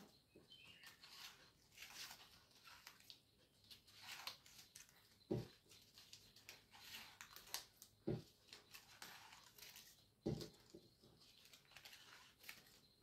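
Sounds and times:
scissors cutting paper: 0.8 - 5.0.

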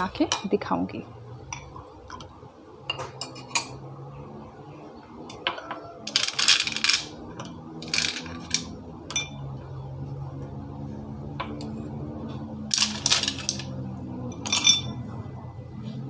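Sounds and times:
rattling clatter: 6.1 - 7.1, 7.8 - 8.7, 12.7 - 13.7
glassware and ladle clinking: 14.3 - 15.0.

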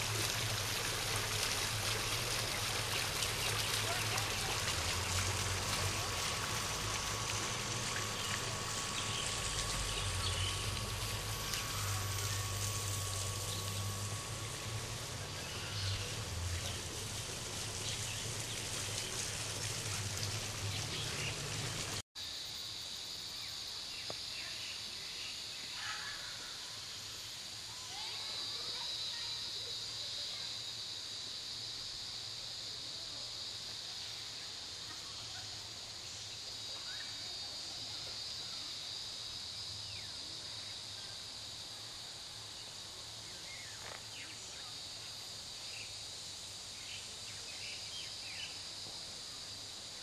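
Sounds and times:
fountain water running: 0.0 - 22.0, 26.0 - 50.0
steady high buzz: 0.0 - 22.6
birds chirping: 2.4 - 22.0.

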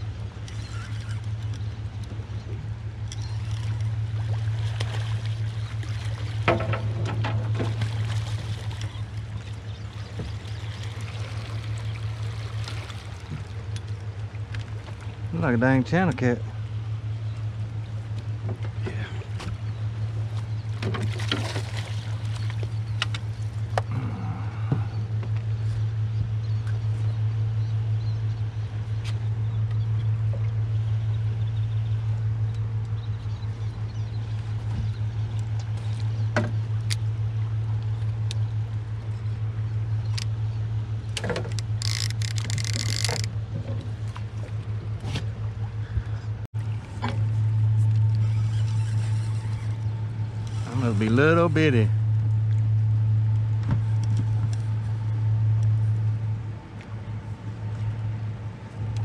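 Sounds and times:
splashing and rattling: 3.0 - 16.4, 18.3 - 23.9, 41.0 - 45.8
small engine humming: 40.0 - 44.5.

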